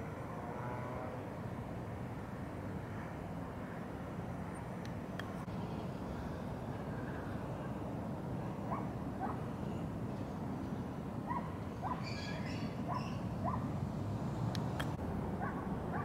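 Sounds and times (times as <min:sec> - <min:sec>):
birds chirping: 0:08.7 - 0:15.0
high bird twitter: 0:11.8 - 0:13.6.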